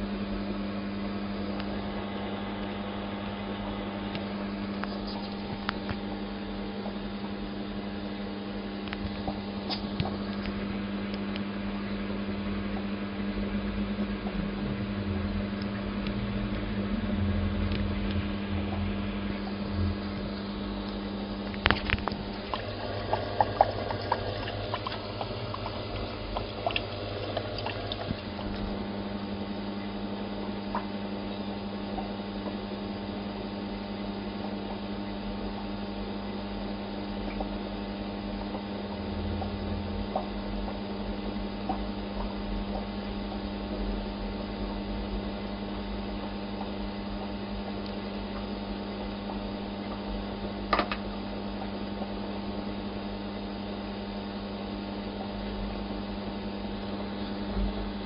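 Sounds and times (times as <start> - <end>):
aquarium equipment hum: 0.0 - 58.0
moving water: 18.6 - 30.7.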